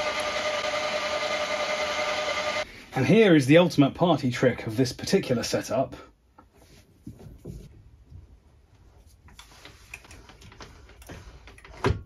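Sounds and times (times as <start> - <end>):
low workshop hum: 0.0 - 3.1.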